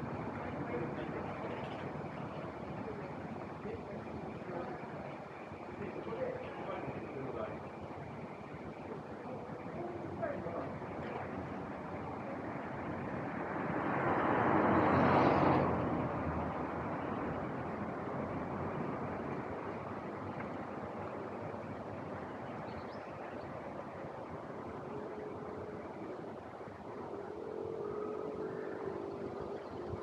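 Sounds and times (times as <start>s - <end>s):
steady traffic hum: 0.0s - 30.0s
vehicle passing close by: 12.9s - 19.1s.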